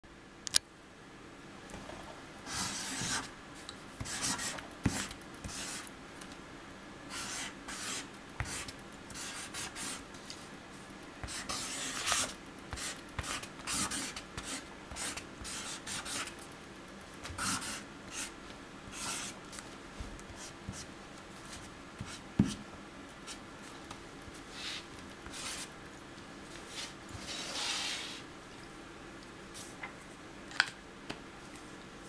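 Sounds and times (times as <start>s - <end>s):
marker scratching on paper: 2.5s - 3.3s, 4.0s - 5.9s, 7.1s - 10.0s, 11.2s - 16.3s, 17.4s - 18.3s, 18.9s - 19.4s.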